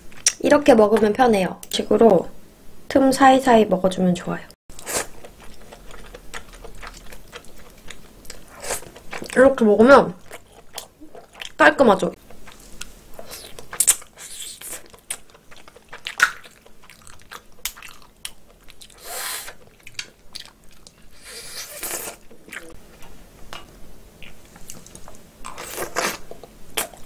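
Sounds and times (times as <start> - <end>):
wet chewing with mouth clicks: 4.7 - 9.4, 10.2 - 11.6, 12.2 - 27.0
slurping: 21.2 - 22.8.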